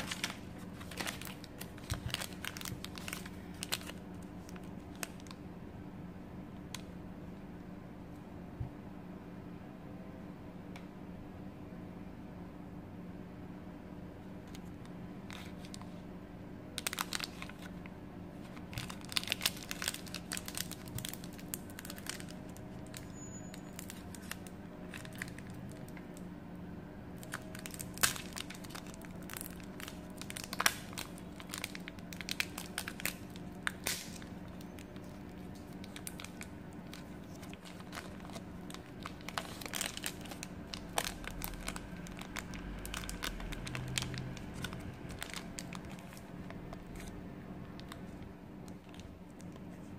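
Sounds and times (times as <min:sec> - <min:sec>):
plastic wrapper crinkling: 0:00.0 - 0:05.4, 0:15.2 - 0:16.0, 0:16.8 - 0:26.2, 0:27.2 - 0:49.9
faint steady hum: 0:00.0 - 0:49.9.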